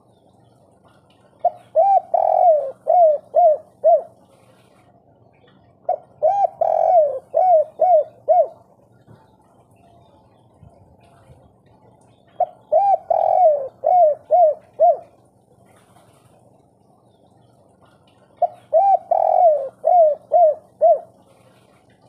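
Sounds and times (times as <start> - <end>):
dove cooing: 1.3 - 4.4, 5.8 - 9.0, 12.3 - 15.8, 18.3 - 21.5.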